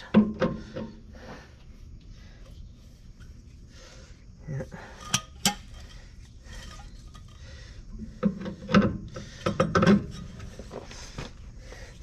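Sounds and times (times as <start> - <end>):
metal clunks and scrapes: 0.0 - 1.0, 4.8 - 11.4.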